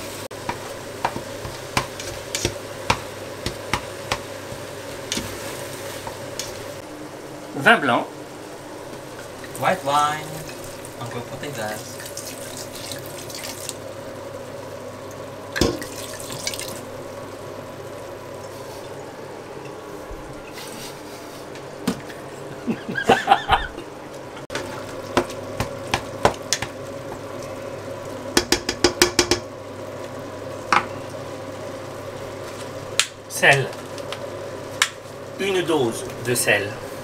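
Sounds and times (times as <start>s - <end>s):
sauce hissing in a pan: 0.0s - 7.5s, 8.2s - 17.6s
faint hum: 0.0s - 37.0s
spoon knocking against pan: 0.4s - 4.6s, 28.4s - 29.5s.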